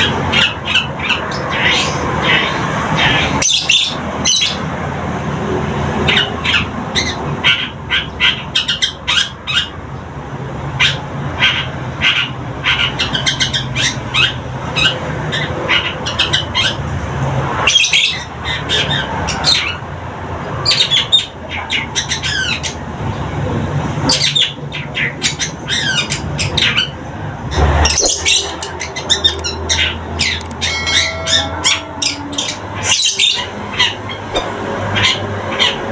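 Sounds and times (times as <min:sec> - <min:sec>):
bird chattering song: 0:00.0 - 0:04.6, 0:10.8 - 0:16.8, 0:20.6 - 0:22.8, 0:24.0 - 0:35.9.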